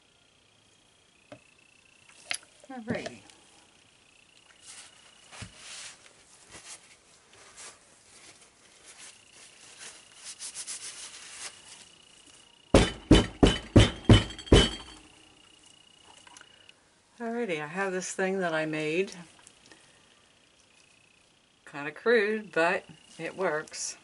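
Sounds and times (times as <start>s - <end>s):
sharp knocks and clinks: 12.8s - 15.1s.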